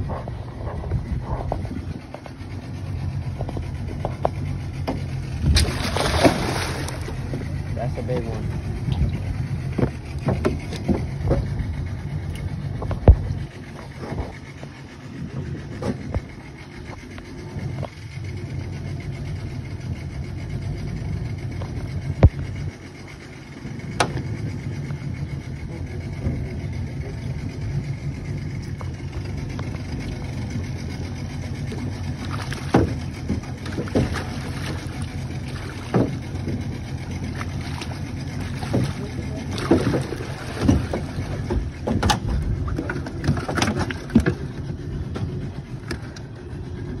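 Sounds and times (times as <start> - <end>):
boat motor rumbling: 0.0 - 47.0.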